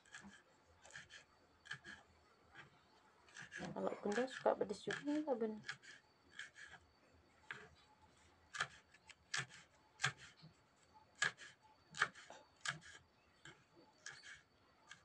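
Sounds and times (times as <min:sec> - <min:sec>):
knife chopping on wooden board: 0:08.5 - 0:10.3, 0:11.2 - 0:15.0.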